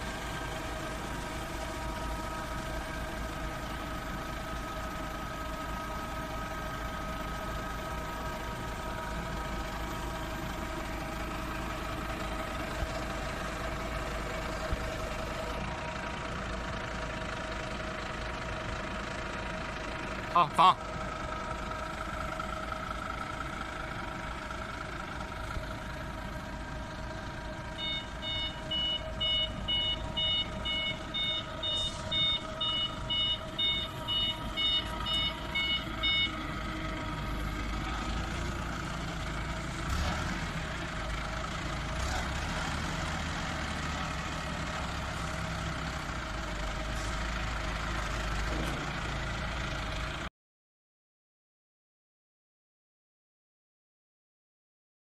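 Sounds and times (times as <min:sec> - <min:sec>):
forklift engine running: 0:00.0 - 0:50.3
high reversing beeps: 0:27.8 - 0:36.4.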